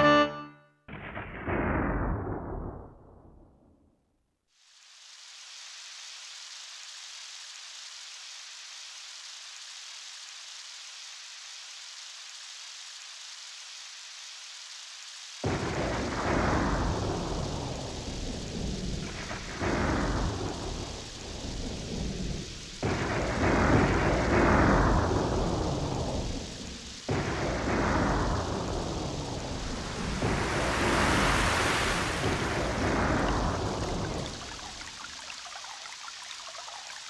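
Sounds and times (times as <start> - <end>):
rain-like hiss: 4.4 - 37.0
thunder claps rumbling: 15.4 - 35.3.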